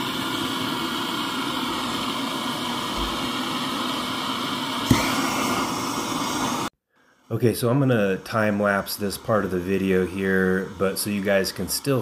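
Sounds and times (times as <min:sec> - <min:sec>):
torch flame hissing: 0:00.0 - 0:12.0
torch lighting click: 0:04.8 - 0:06.2.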